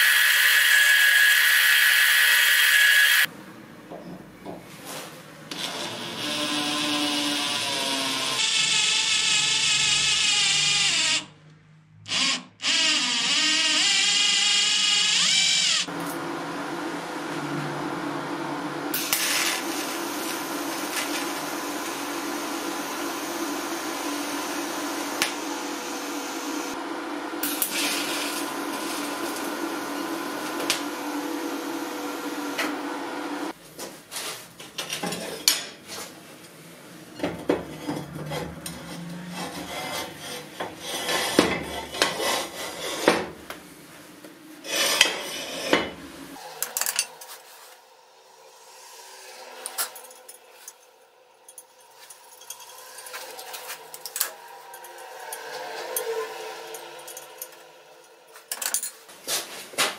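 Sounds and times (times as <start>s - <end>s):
drill drilling into steel: 0.0s - 3.3s, 5.5s - 11.3s, 12.1s - 15.9s
welding arc hum and hiss: 0.0s - 3.3s, 15.8s - 33.6s.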